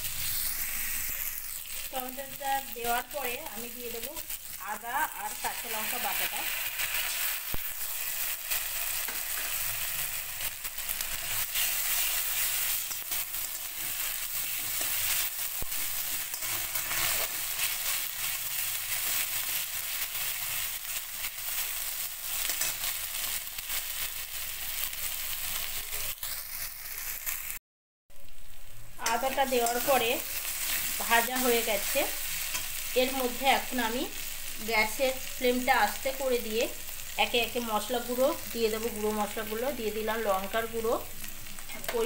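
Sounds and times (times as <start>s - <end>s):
paste sizzling in hot oil: 0.0s - 27.6s, 28.2s - 42.0s
metal spatula scraping pan: 16.0s - 18.0s, 29.5s - 29.9s.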